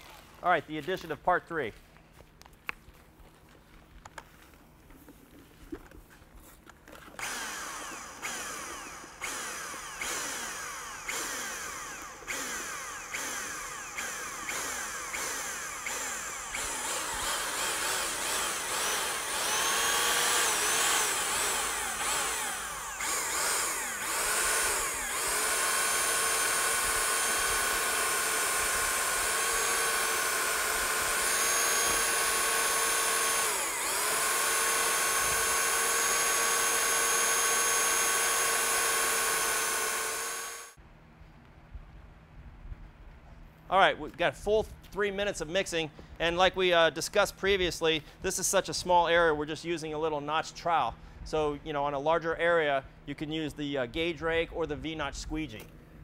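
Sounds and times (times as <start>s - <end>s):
paddle mixer drill churning: 7.1s - 40.8s.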